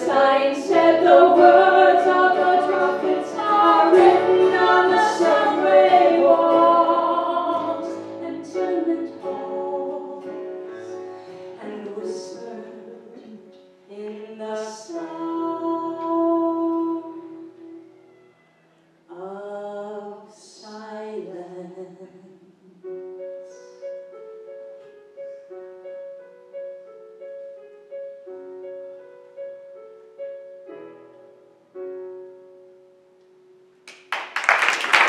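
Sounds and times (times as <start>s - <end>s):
women singing: 0.0s - 11.0s, 11.6s - 17.8s
audience applause: 33.9s - 35.0s.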